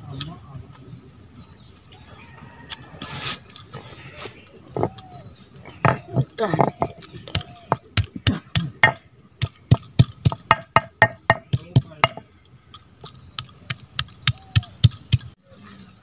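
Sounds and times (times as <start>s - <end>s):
stone roller knocking on slab: 5.8s - 12.2s.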